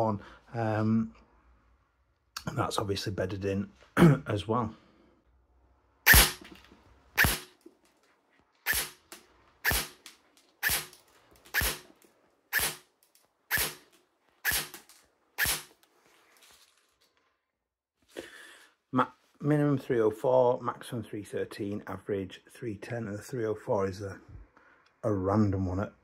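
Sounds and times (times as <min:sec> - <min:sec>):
airsoft gun single shots: 0:06.1 - 0:06.5, 0:07.2 - 0:07.6, 0:08.7 - 0:09.0, 0:09.6 - 0:10.0, 0:10.6 - 0:11.8, 0:12.5 - 0:12.8, 0:13.5 - 0:13.8, 0:14.4 - 0:15.7.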